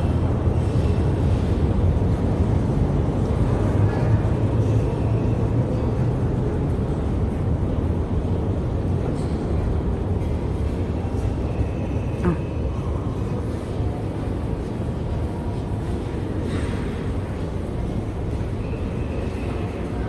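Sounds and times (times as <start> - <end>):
metro station low rumble: 0.0 - 20.0.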